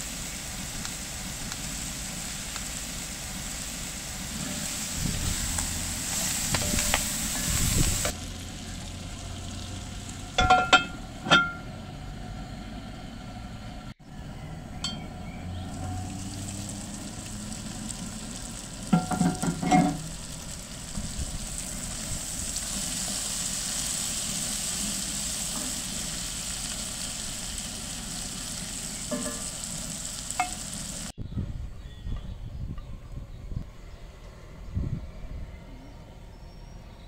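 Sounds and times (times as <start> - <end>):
vegetables sizzling in a pan: 0.0 - 10.5, 15.6 - 31.2
wooden spoon knocking and scraping pan: 19.0 - 20.0, 29.1 - 29.5.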